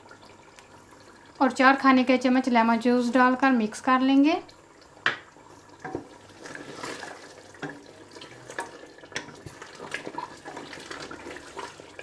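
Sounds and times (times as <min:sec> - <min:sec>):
gravy sloshing: 0:05.7 - 0:12.0.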